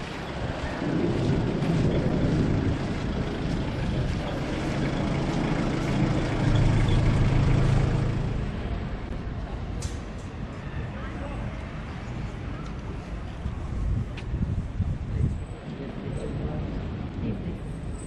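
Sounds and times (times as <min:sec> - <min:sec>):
heavy engine humming: 0:00.0 - 0:10.9
street noise: 0:00.0 - 0:18.0.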